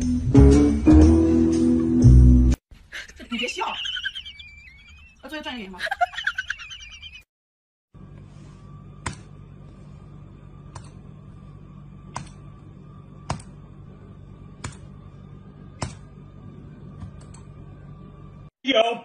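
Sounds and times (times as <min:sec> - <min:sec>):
steady low hum: 0:08.0 - 0:18.5.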